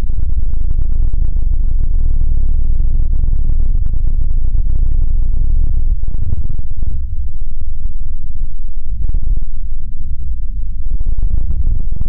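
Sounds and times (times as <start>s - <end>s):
deep rumbling drone: 0.0s - 12.0s.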